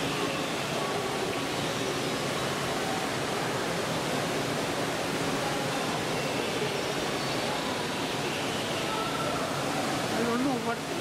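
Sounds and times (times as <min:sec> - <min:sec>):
steady rushing noise of exhibit hall: 0:00.0 - 0:11.0.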